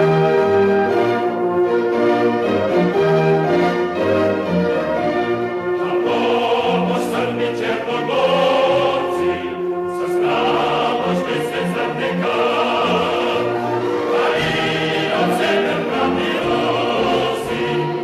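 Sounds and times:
choir singing: 0.0 - 18.0
orchestral accompaniment: 0.0 - 18.0.

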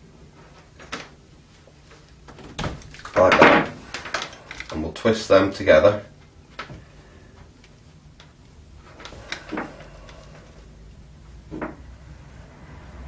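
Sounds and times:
wires twisted by hand: 1.9 - 4.9, 6.2 - 10.7.

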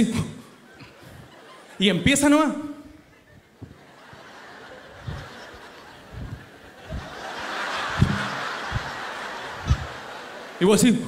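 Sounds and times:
audience laughter: 0.6 - 1.8, 3.0 - 11.0
short low thumps: 4.9 - 10.2.

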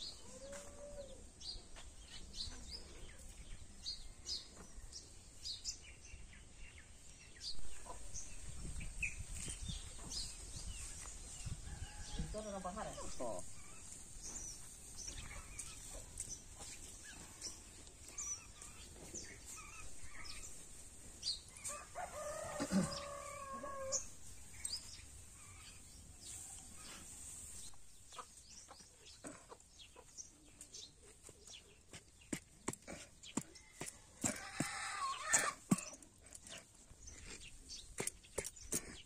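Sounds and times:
small birds chirping: 0.0 - 39.0
rooster crowing: 21.7 - 24.1.

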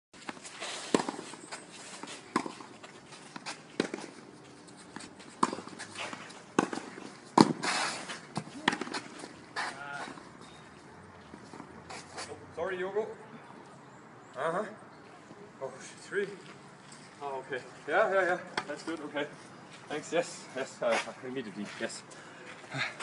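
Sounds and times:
racket striking tennis ball: 0.2 - 1.4, 2.0 - 4.2, 5.0 - 10.2.

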